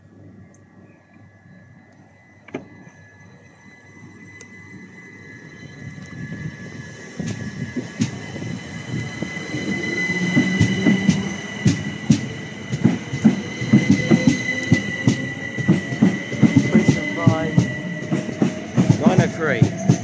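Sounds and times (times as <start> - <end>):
high-pitched whine: 0.0 - 20.0
train wheels clicking over rail joints: 7.2 - 20.0.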